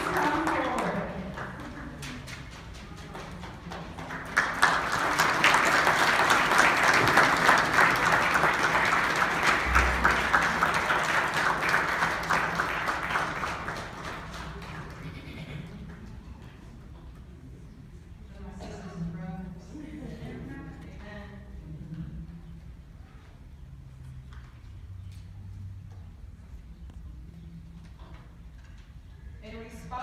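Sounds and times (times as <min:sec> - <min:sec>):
congregation applauding: 0:00.0 - 0:16.2.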